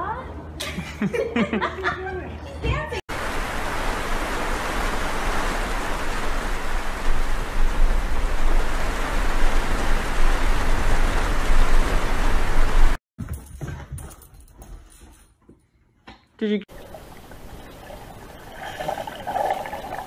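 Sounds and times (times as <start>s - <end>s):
steady rain falling: 3.1s - 13.0s.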